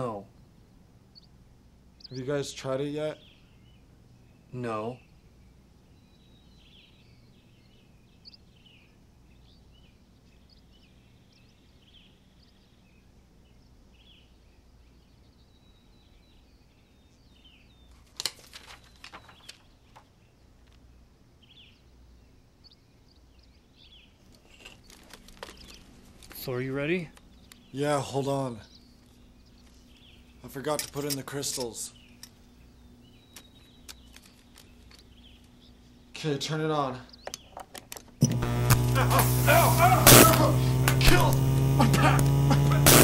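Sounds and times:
sharp clicks and knocks: 37.2s - 39.0s.

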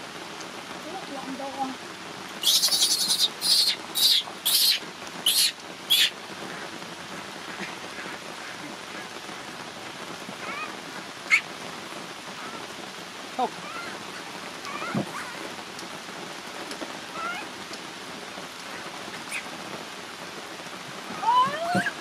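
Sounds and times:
rain hiss: 0.0s - 22.0s
baby monkey shrieking: 2.4s - 6.1s, 10.4s - 11.4s, 13.6s - 14.0s, 14.7s - 15.4s, 17.1s - 17.5s, 19.1s - 19.5s, 21.2s - 22.0s.

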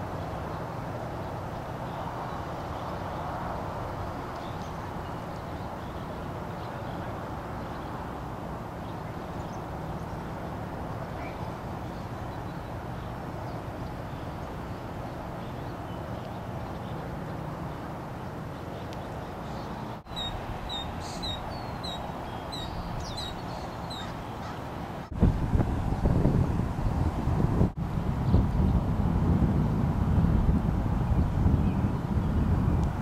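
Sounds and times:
background hiss: 0.0s - 25.3s
osprey whistled chirps: 20.1s - 24.1s.

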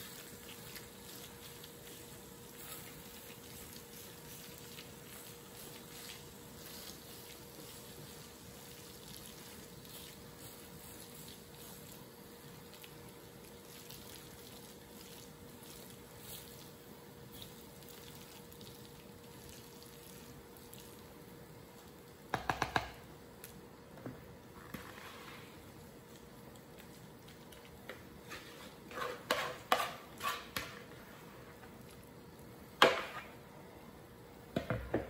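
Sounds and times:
spoon scraping wet filling: 0.0s - 21.0s, 24.6s - 31.1s
faint steady hum: 0.0s - 35.0s.

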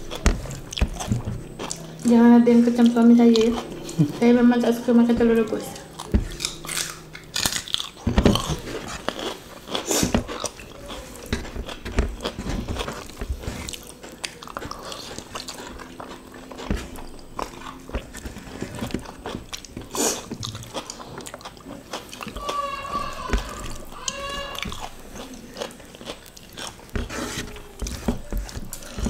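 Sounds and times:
people chewing food: 0.0s - 29.0s.

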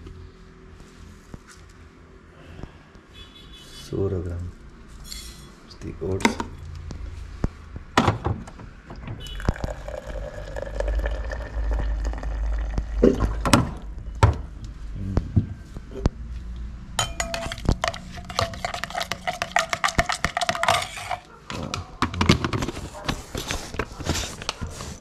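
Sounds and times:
dishes and metal spoon clinking: 5.0s - 5.6s, 17.0s - 21.3s
liquid being poured: 9.2s - 13.4s.

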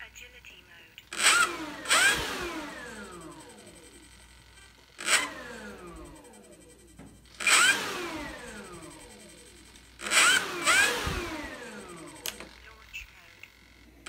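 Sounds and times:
model plane motor spinning up: 1.1s - 4.3s, 5.0s - 6.6s, 7.3s - 12.8s.

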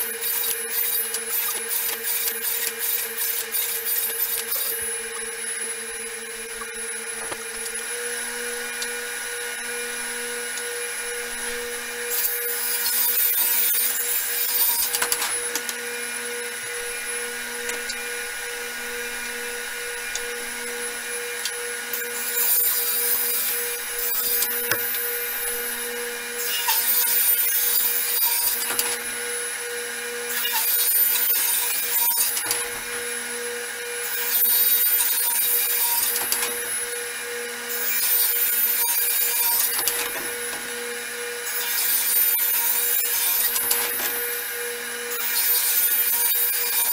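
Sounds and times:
table saw blade ripping plywood: 0.0s - 5.3s, 12.1s - 15.7s, 21.4s - 25.8s, 41.5s - 44.4s
saw motor humming: 0.0s - 46.9s.

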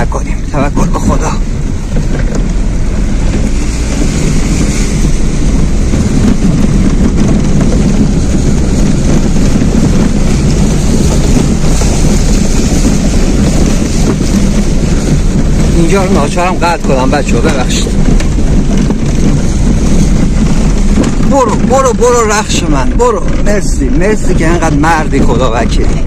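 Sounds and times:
car engine pulling hard: 0.0s - 26.0s
water rushing and splashing: 7.0s - 25.5s.

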